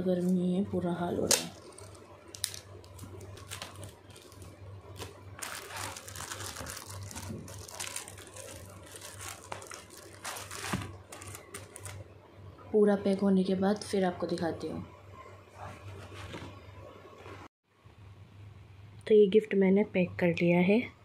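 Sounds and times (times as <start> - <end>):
foil wrapping paper crinkling: 1.6 - 12.0
adhesive tape ripping: 5.0 - 12.0.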